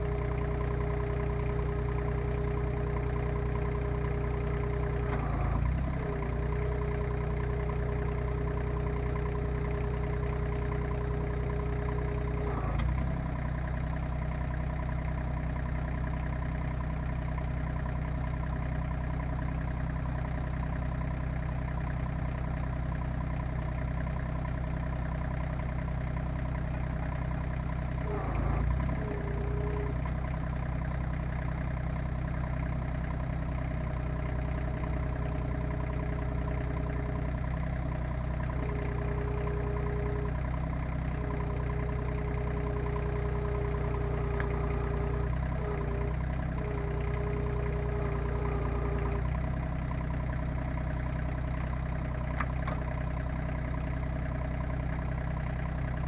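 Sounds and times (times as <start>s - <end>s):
diesel engine running: 0.0s - 56.0s
hydraulic whine: 28.0s - 30.1s.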